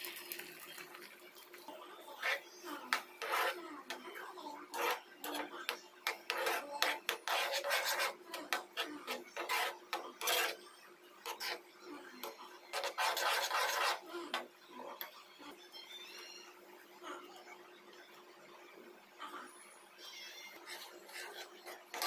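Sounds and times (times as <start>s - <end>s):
ladle scraping a pan: 2.2s - 11.6s, 12.2s - 14.5s, 20.5s - 22.0s.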